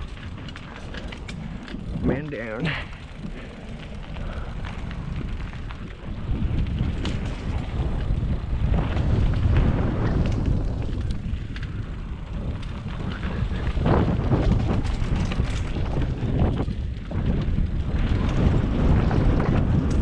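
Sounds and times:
bike clicks and knocks: 0.0 - 20.0
tyres rumbling on dirt: 0.0 - 20.0
wind rushing over microphone: 0.0 - 20.0.

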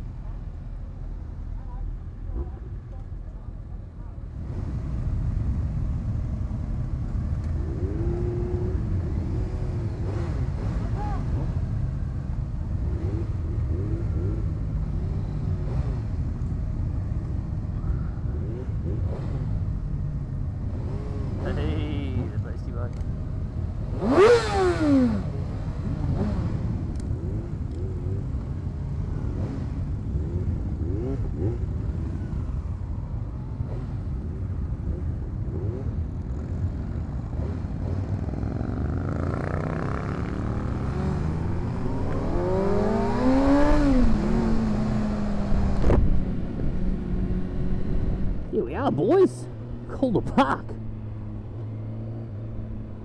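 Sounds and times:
sport bike engines running: 0.0 - 53.0
motorcycle engine accelerating: 23.7 - 32.8, 33.5 - 50.0, 50.8 - 53.0.

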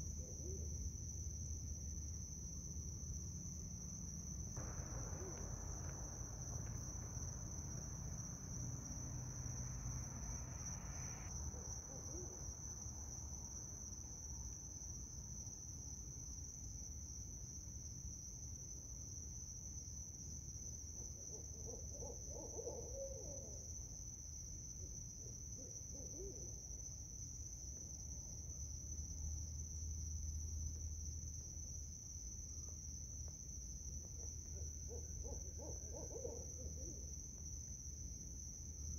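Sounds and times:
steady high-pitched drone: 4.6 - 11.3.

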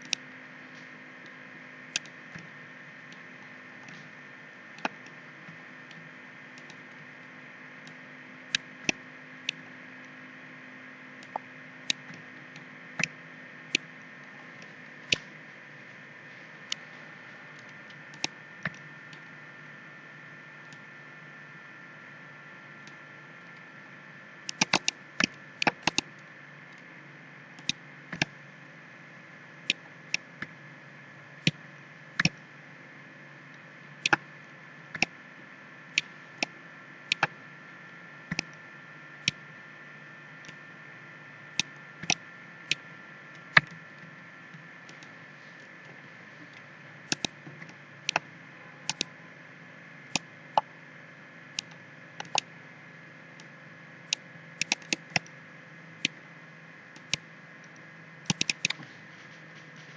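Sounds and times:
low hiss and hum: 0.0 - 59.9
mouse buttons clicking: 24.5 - 25.0, 37.1 - 37.3, 47.1 - 47.4, 48.8 - 49.1, 51.6 - 52.4, 54.1 - 55.2, 58.3 - 58.8.

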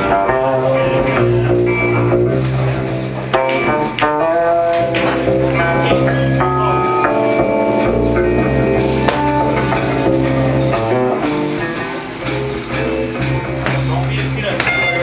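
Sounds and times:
electric bass guitar: 0.0 - 15.0
jazz band playing live: 0.0 - 15.0
drums and jingling percussion: 7.2 - 15.0.

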